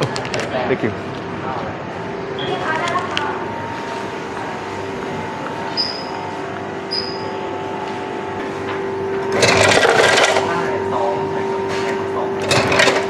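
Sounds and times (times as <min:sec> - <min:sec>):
restaurant machinery hum: 0:00.0 - 0:13.0
short high beeps: 0:02.4 - 0:02.7, 0:05.7 - 0:06.2, 0:06.9 - 0:07.4.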